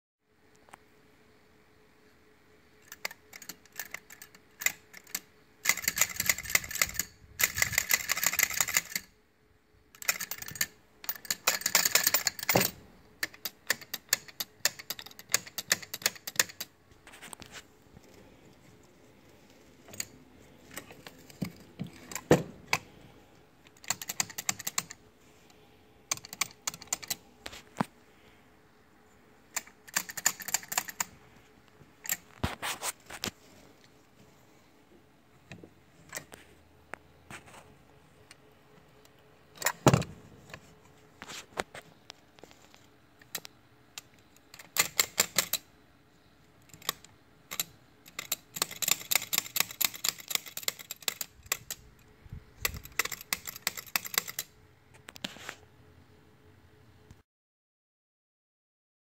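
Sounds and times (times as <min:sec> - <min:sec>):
metal parts clicking and rattling: 0:02.8 - 0:09.1, 0:09.9 - 0:17.3, 0:19.5 - 0:22.9, 0:23.7 - 0:25.0, 0:29.5 - 0:31.2, 0:43.2 - 0:45.6, 0:46.7 - 0:51.8, 0:52.6 - 0:54.5.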